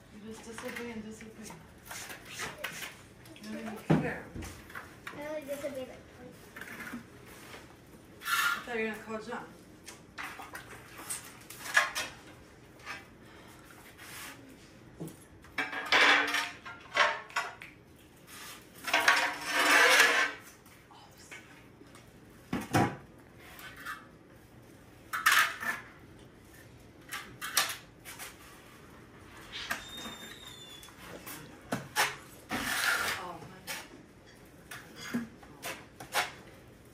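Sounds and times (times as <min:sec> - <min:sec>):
trowel scraping mortar: 0:31.9 - 0:33.9.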